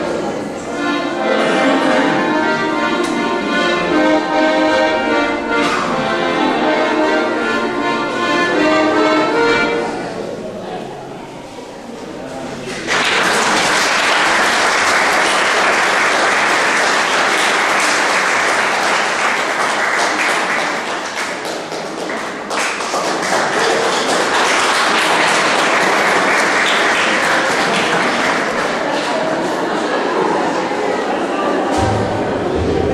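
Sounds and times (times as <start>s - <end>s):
audience applauding: 12.6s - 30.7s.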